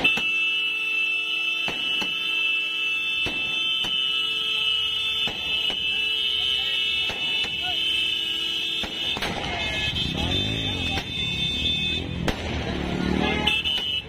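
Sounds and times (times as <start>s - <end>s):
high firework whistle: 0.0s - 6.0s.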